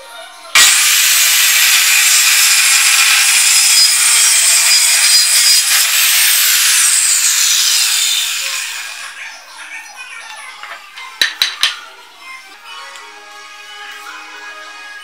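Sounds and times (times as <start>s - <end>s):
circular saw cutting plywood: 0.6s - 9.2s.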